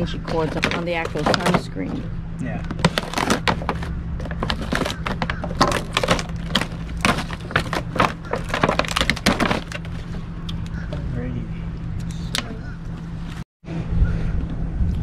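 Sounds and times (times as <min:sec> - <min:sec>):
low hum: 0:00.0 - 0:15.0
plastic bag crinkling: 0:00.2 - 0:01.7, 0:02.7 - 0:10.2.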